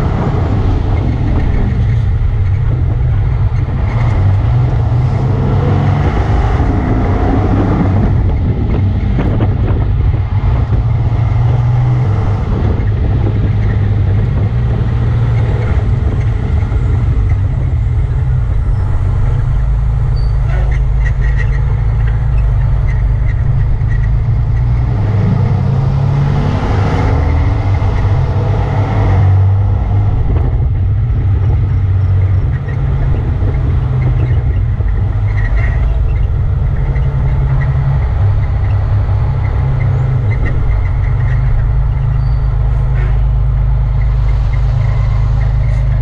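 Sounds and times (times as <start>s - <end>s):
fire truck engine rumble: 0.0s - 46.0s.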